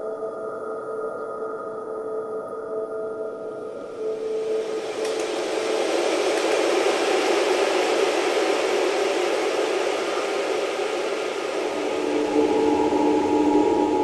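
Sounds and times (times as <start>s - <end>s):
steady toneless rushing hiss: 3.9s - 14.0s.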